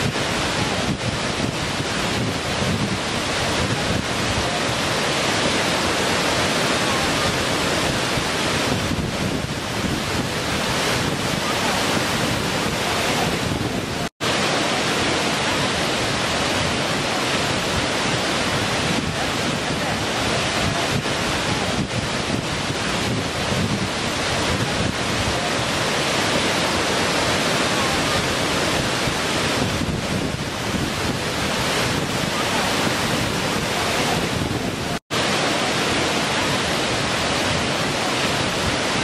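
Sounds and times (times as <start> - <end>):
waterfall rushing: 0.0 - 39.0.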